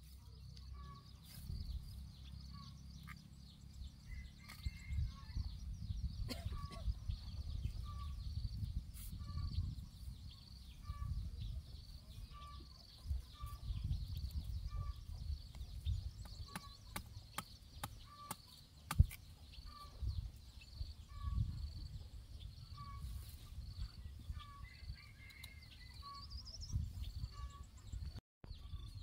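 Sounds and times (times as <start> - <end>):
wind rumble on microphone: 1.4 - 2.2, 3.8 - 17.0, 19.9 - 29.0.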